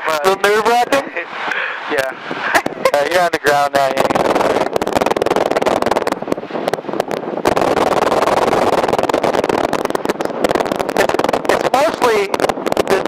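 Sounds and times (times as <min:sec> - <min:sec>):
airplane engine and propeller drone: 0:00.0 - 0:13.0.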